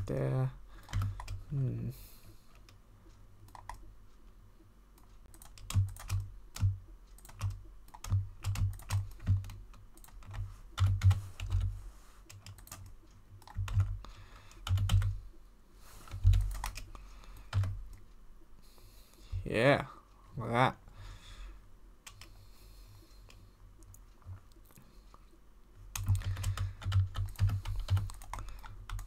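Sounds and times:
computer keyboard typing: 0.8 - 1.5, 3.5 - 3.8, 5.2 - 11.7, 12.3 - 15.2, 16.1 - 18.0, 22.0 - 22.4, 25.9 - 29.0.

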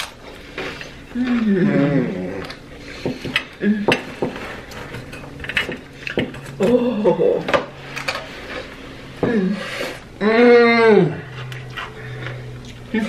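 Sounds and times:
person humming: 1.1 - 2.6, 6.6 - 7.5, 9.2 - 11.4.

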